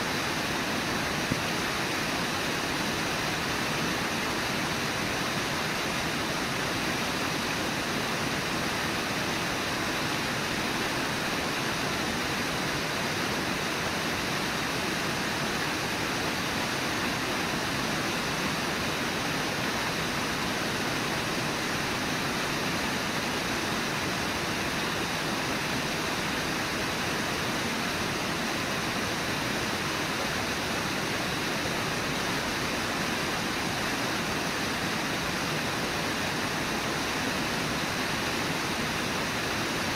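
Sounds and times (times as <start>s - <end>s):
river water rushing: 0.0s - 39.9s.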